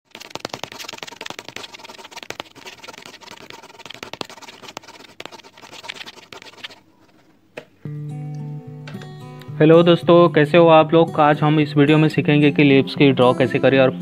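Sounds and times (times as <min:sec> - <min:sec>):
pen scratching on paper: 0:00.1 - 0:07.3.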